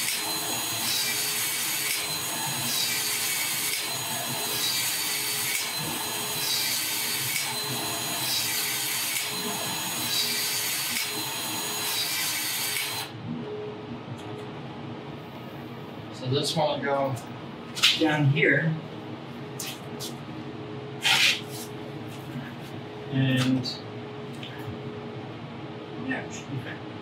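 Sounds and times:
expansion tool motor cycling: 0:00.0 - 0:13.1.

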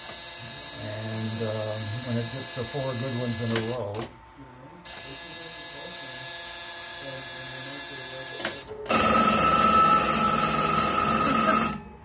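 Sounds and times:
alarm bell ringing: 0:08.9 - 0:12.0
steady buzzing tone: 0:08.9 - 0:12.0.

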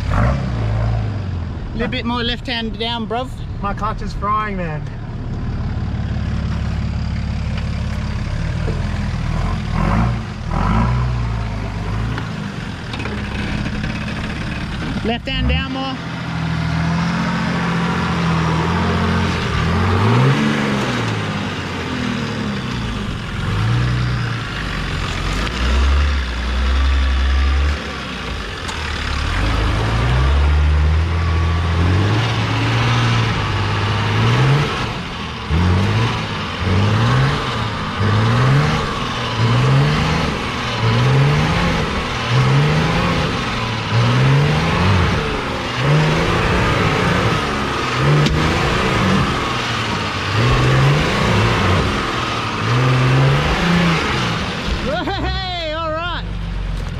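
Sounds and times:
diesel engine labouring and revving: 0:00.0 - 0:56.9
man talking: 0:01.7 - 0:05.0, 0:54.9 - 0:56.3.

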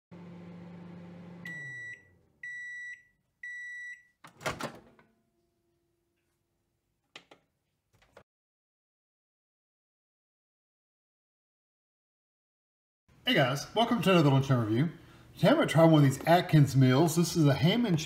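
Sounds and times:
microwave humming: 0:00.1 - 0:06.1.

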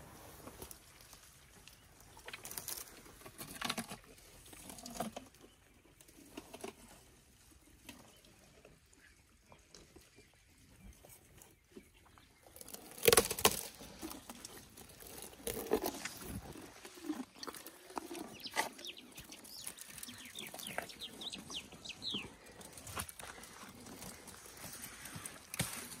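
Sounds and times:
elephant chewing: 0:00.0 - 0:26.0
twigs rustling and crackling: 0:00.4 - 0:07.0, 0:12.2 - 0:26.0.

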